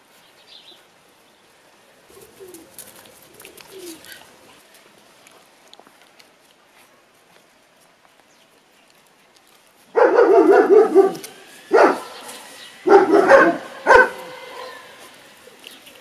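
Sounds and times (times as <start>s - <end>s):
puppies barking and yapping: 9.9s - 16.0s.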